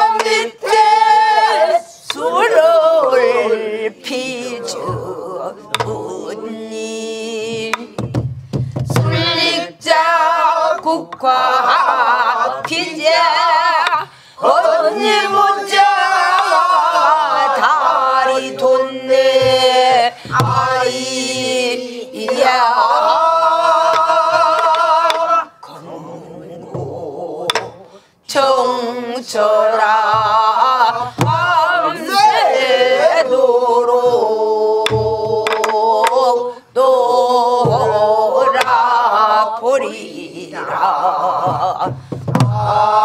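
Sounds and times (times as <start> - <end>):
group singing folk song: 0.0 - 43.0
barrel drum strokes: 4.3 - 10.0, 14.9 - 22.8, 41.2 - 43.0.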